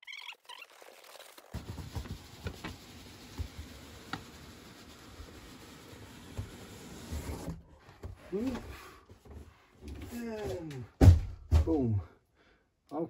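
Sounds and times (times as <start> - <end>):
cardboard rubbing and scraping: 0.8 - 8.7.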